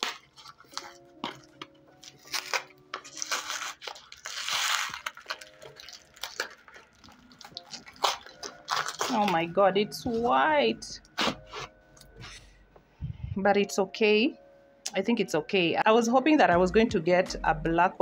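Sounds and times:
tearing rustle: 0:00.0 - 0:09.3
plastic and tape crinkling: 0:00.0 - 0:10.4.

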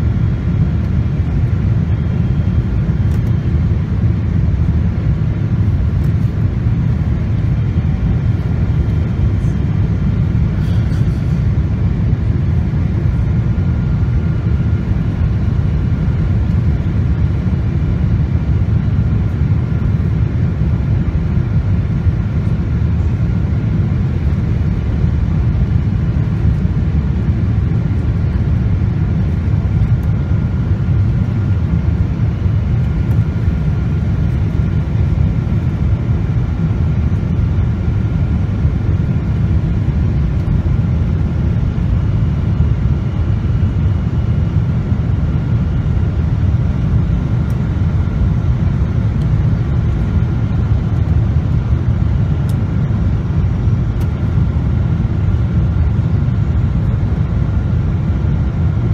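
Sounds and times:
airliner engines rumbling: 0:00.0 - 0:58.9
faint steady whine: 0:00.0 - 0:58.9.

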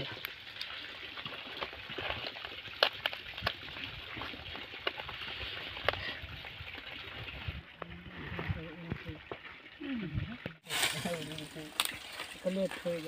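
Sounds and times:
leaves rustling and crackling: 0:10.6 - 0:13.0.

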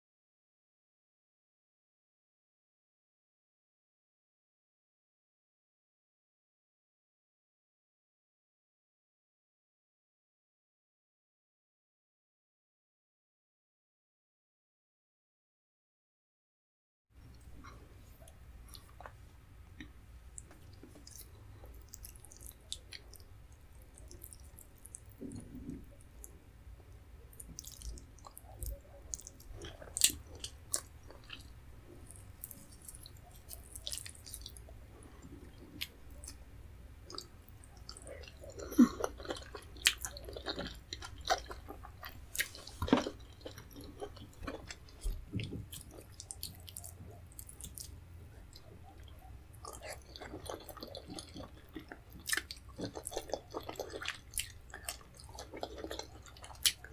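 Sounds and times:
mouth clicks and chewing: 0:17.3 - 0:56.9.

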